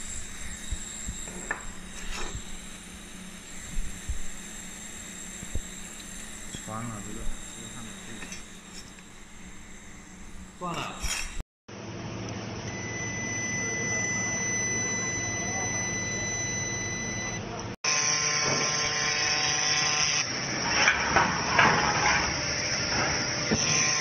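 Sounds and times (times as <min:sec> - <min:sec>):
welding hissing crackles: 0:00.0 - 0:11.1
laser welder humming: 0:00.0 - 0:11.4, 0:12.3 - 0:24.0.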